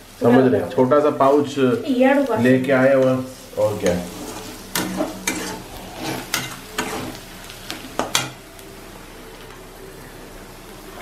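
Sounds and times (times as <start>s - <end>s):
food sizzling in oil: 0.0s - 11.0s
metal spatula scraping a pan: 2.4s - 7.2s.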